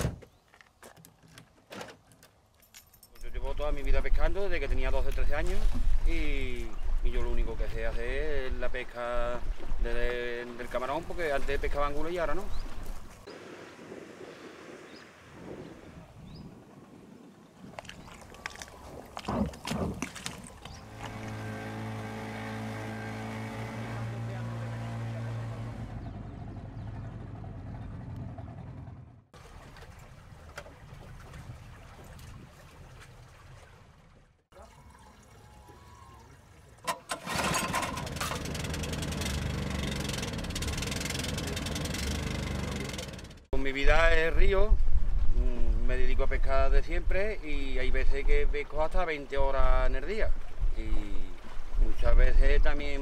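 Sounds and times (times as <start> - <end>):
outboard motor running: 19.6 - 30.2, 36.8 - 43.5.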